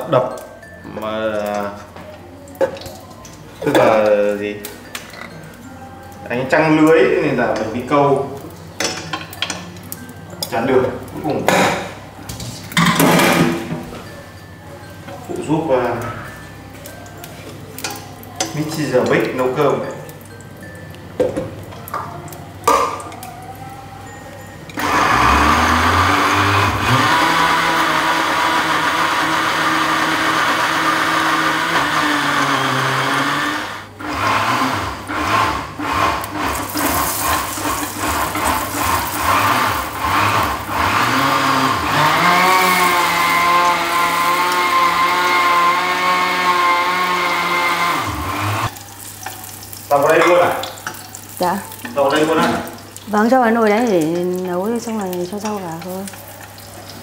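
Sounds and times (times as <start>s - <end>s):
electric blender motor grinding: 24.8s - 48.8s.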